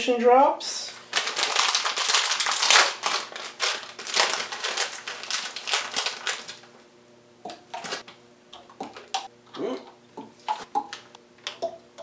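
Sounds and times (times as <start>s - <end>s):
plastic packet crinkling: 0.9s - 6.8s, 7.7s - 8.0s.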